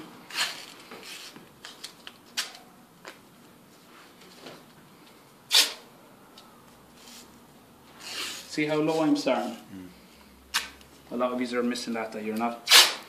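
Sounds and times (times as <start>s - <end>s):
tape ripping off roll: 5.5s - 5.8s, 12.6s - 13.0s.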